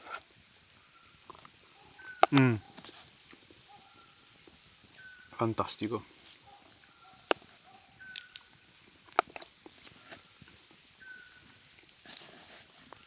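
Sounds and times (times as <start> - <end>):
bird whistling short notes: 2.0 - 2.4, 8.0 - 8.4.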